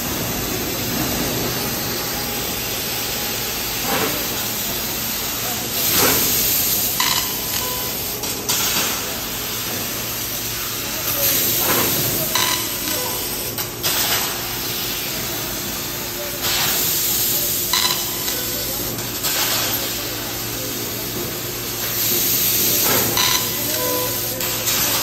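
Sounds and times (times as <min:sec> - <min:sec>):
laser cutting steel hiss and sizzle: 0:00.2 - 0:15.1.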